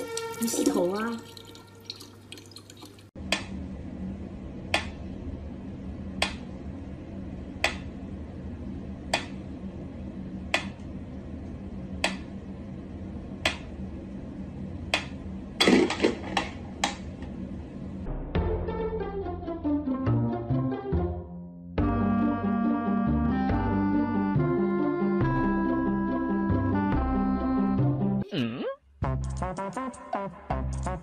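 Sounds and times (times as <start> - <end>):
music: 0.0 - 1.0, 18.1 - 28.3, 29.0 - 31.0
low hum: 3.1 - 19.6.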